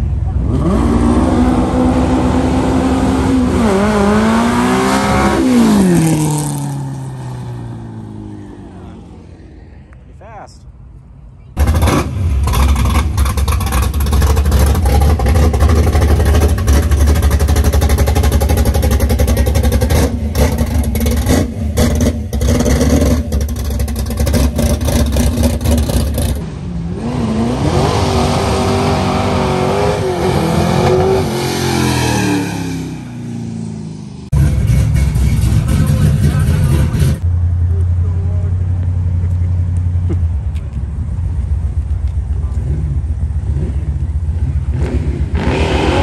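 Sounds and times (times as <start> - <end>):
car engine revving: 0.0 - 9.5, 11.6 - 40.6, 42.3 - 46.0
drag car exhaust rumble: 11.6 - 27.0, 34.3 - 46.0.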